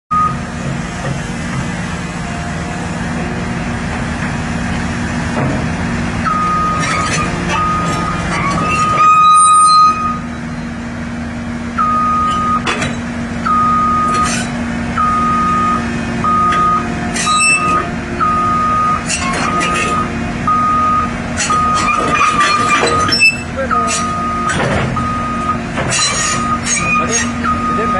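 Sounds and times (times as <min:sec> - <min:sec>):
travel alarm beeping: 0:00.1 - 0:00.4, 0:06.3 - 0:06.8, 0:07.6 - 0:08.3, 0:09.1 - 0:10.3, 0:11.8 - 0:12.7, 0:13.4 - 0:14.4, 0:15.0 - 0:22.0, 0:23.2 - 0:25.6, 0:26.2 - 0:27.9
excavator diesel engine running: 0:00.1 - 0:27.9.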